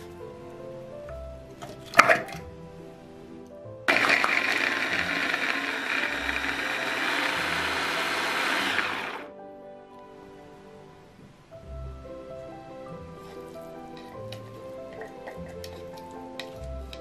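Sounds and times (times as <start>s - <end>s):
quiet background music: 0.0s - 17.0s
electric mini chopper chopping: 3.9s - 9.2s.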